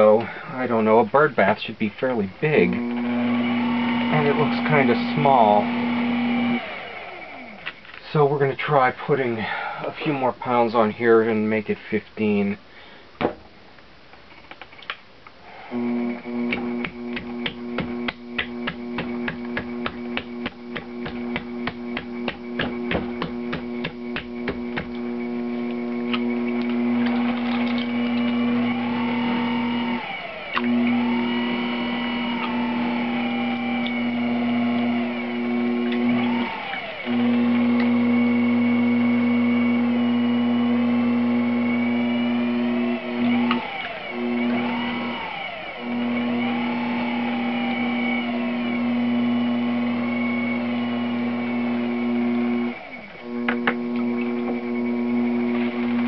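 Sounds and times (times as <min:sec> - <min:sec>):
potter's wheel motor hum: 0:02.4 - 0:07.7, 0:15.5 - 0:56.0
rapid knocking of spinning clay: 0:16.5 - 0:25.0.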